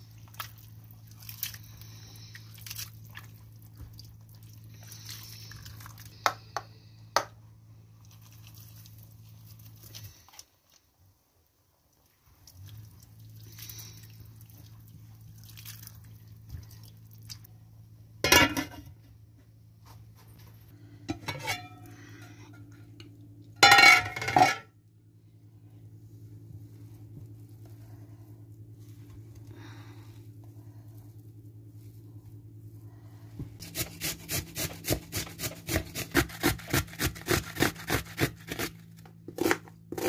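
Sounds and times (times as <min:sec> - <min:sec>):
low hum: 0:12.5 - 0:33.7
spatula scraping metal pot: 0:21.1 - 0:22.3.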